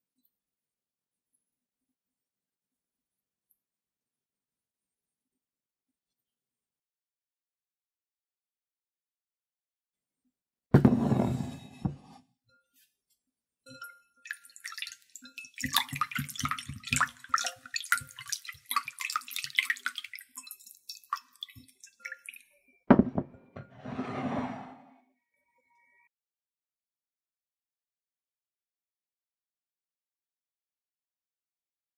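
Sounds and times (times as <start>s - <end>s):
water rushing into glass bowl: 14.3s - 22.4s.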